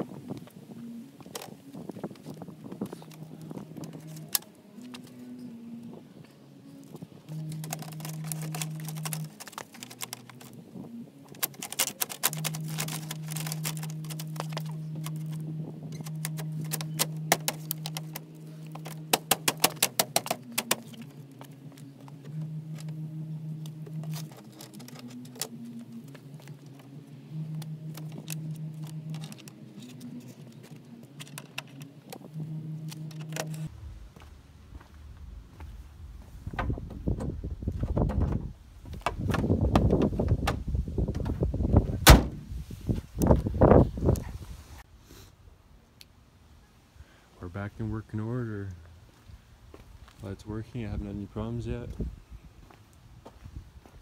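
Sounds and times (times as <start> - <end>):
music bass line: 7.2 - 9.4, 12.0 - 21.0, 22.0 - 30.2, 32.2 - 42.5
plastic and metal parts clicking: 7.3 - 10.6, 11.3 - 21.1, 23.9 - 25.6, 27.5 - 33.7.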